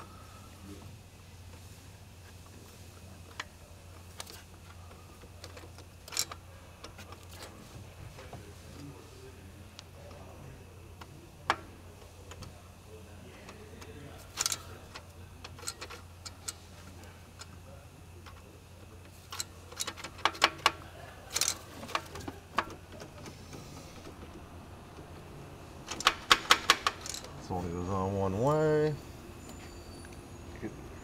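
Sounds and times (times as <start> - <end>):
low steady hum: 0.0 - 31.0
clicks of small parts being fitted: 4.1 - 7.5, 13.5 - 16.6, 19.0 - 23.4, 25.9 - 27.3.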